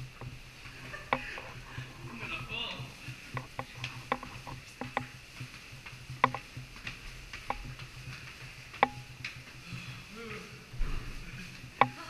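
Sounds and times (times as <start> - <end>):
footsteps on stone stairs: 0.0 - 12.0.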